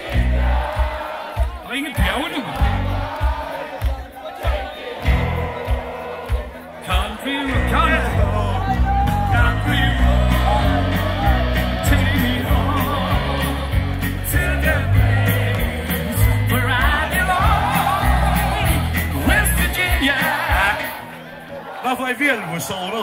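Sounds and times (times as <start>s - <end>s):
band music with heavy bass beat: 0.0s - 21.2s
crowd yelling and whooping: 0.0s - 23.0s
person singing: 4.5s - 21.1s.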